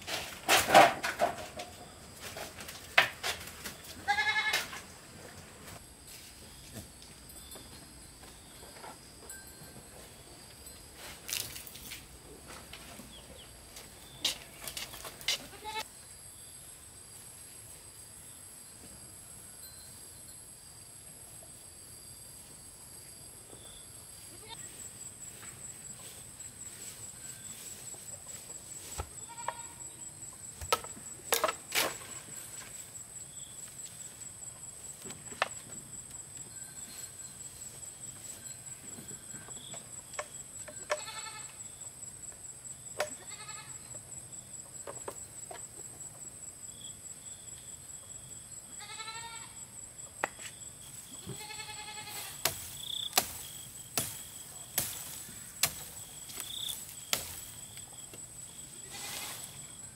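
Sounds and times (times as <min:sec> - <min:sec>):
animal bleats: 0:04.0 - 0:04.8, 0:15.4 - 0:15.9, 0:29.2 - 0:29.9, 0:40.9 - 0:41.6, 0:43.1 - 0:43.9, 0:48.8 - 0:49.6, 0:51.2 - 0:52.4, 0:58.8 - 0:59.5
high insect whine: 0:13.4 - 0:59.9.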